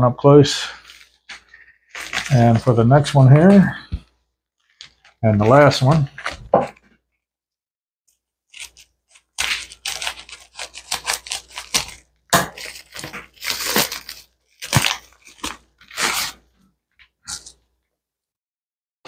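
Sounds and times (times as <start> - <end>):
mailer crinkling and rustling: 0.8 - 3.8, 4.7 - 6.8, 8.6 - 16.5
scissors cutting plastic mailer: 8.5 - 16.4.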